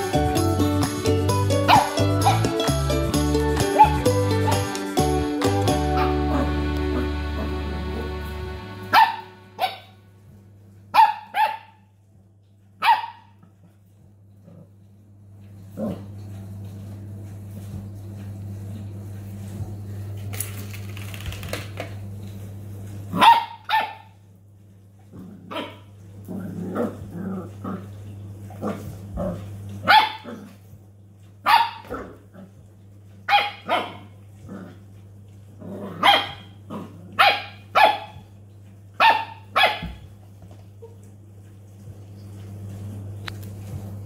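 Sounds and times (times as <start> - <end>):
puppy barking in high yaps: 1.7 - 2.5, 3.7 - 4.6, 8.9 - 10.0, 10.9 - 11.9, 12.8 - 13.4, 23.1 - 24.2, 29.8 - 30.3, 31.4 - 32.1, 33.3 - 34.2, 36.0 - 36.6, 37.2 - 38.3, 39.0 - 40.0.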